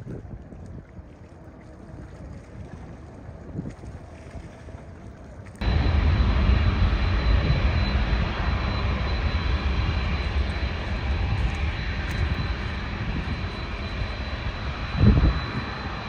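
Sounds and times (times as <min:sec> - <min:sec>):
jet engines whining and rumbling: 0:05.6 - 0:16.0.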